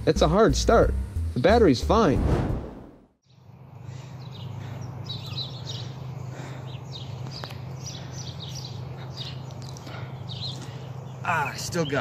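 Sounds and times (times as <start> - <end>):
songbirds chirping: 3.2 - 12.0.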